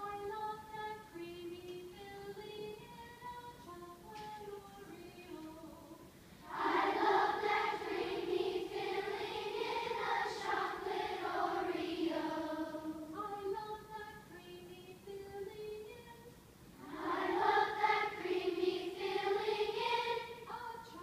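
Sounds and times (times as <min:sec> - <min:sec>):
children's choir singing: 0:06.4 - 0:13.3, 0:16.8 - 0:21.0.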